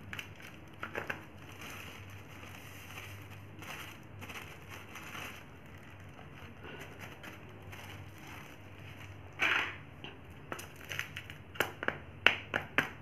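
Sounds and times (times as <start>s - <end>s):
plastic bag rustling: 0.0s - 9.8s.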